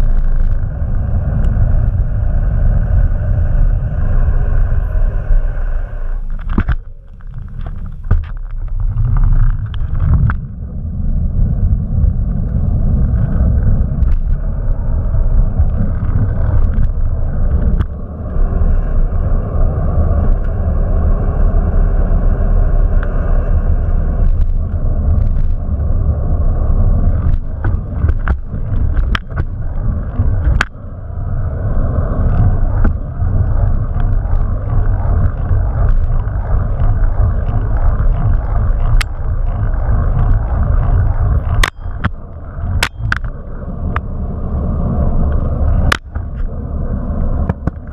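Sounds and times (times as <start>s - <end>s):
bicycle tyres rolling on pavement: 0.0s - 47.9s
wind buffeting microphone: 0.0s - 47.9s
bike clicks and rattles: 6.2s - 10.8s, 11.5s - 18.7s, 22.8s - 44.1s, 45.1s - 47.9s.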